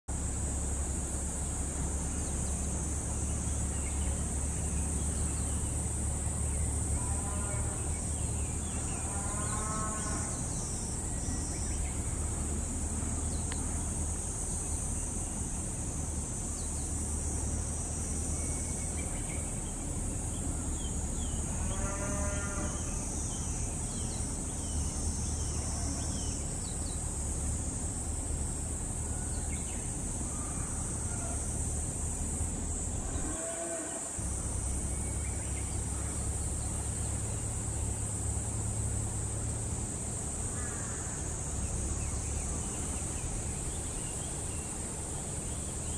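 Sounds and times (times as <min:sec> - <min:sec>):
insects droning: 0:00.1 - 0:45.9
low rumble: 0:34.2 - 0:44.9.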